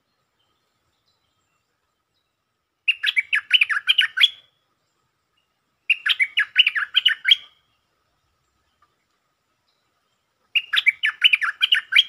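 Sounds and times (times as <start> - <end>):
bird singing chattering notes: 2.2 - 4.4, 5.9 - 7.7, 10.5 - 12.0.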